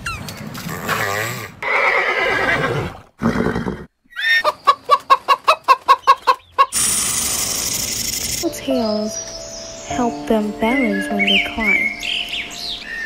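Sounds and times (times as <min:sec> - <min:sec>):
chickens clucking: 0:04.2 - 0:06.8
snake hissing: 0:06.8 - 0:08.4.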